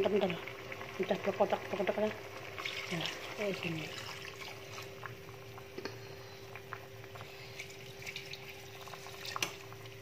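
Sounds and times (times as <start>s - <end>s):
faint hum: 0.0s - 10.0s
sauce simmering in a frying pan: 0.0s - 10.0s
coconut milk pouring: 2.4s - 5.2s.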